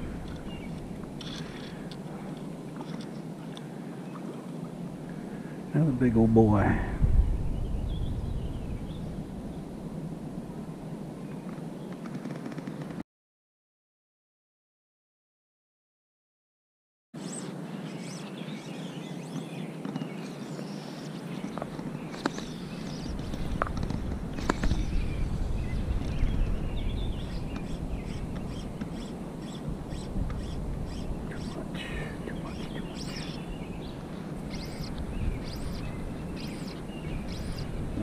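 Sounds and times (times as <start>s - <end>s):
birds chirping: 0.0s - 9.7s, 17.2s - 38.0s
wind on microphone: 6.0s - 11.4s, 21.3s - 38.0s.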